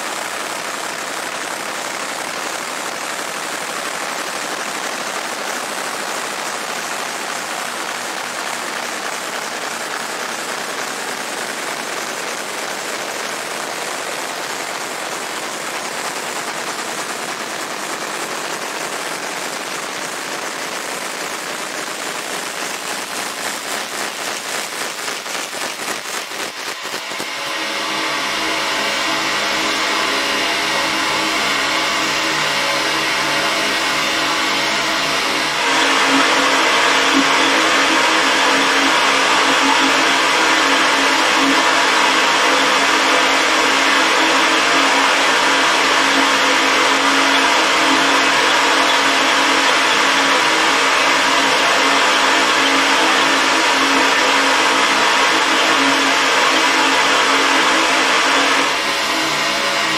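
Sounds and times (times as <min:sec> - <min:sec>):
fan-like rush: 0:03.3 - 0:59.9
motor hum: 0:22.9 - 0:59.9.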